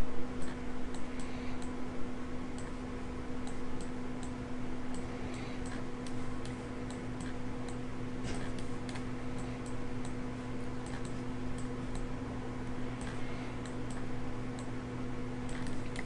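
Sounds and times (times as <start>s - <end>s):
low electrical hum: 0.0s - 16.0s
computer mouse clicking: 0.4s - 1.8s, 3.4s - 10.2s, 10.8s - 12.1s, 12.9s - 14.7s, 15.4s - 16.0s.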